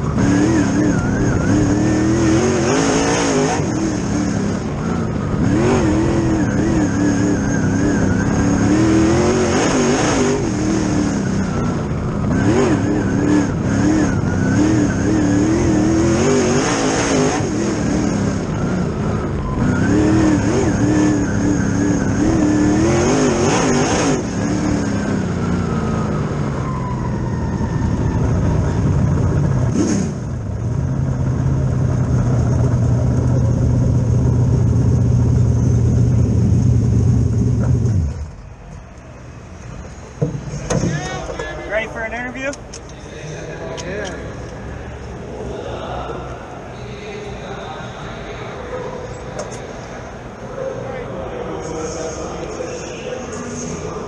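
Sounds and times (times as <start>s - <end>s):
race car engine revving: 0.0s - 39.0s.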